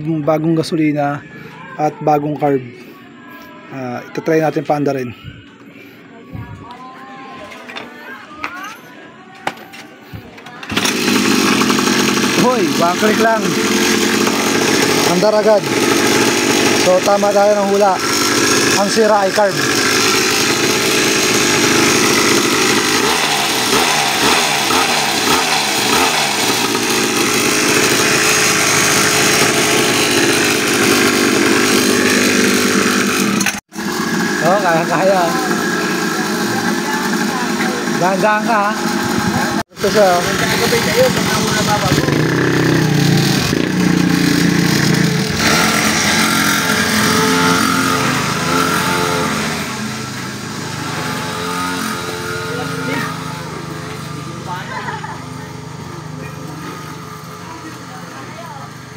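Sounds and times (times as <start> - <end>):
small two-stroke engine running: 10.0 - 58.9.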